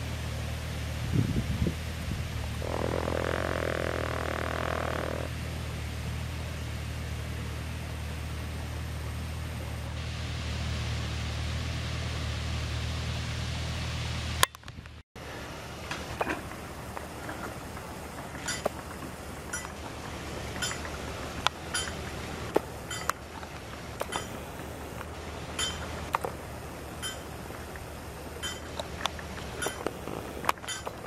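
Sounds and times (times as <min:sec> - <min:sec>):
steady low background noise: 0:15.2 - 0:31.0
light sharp clinks and clicks: 0:18.2 - 0:18.8, 0:19.5 - 0:19.8, 0:20.6 - 0:22.1, 0:22.8 - 0:26.3, 0:27.0 - 0:27.4, 0:28.4 - 0:31.0.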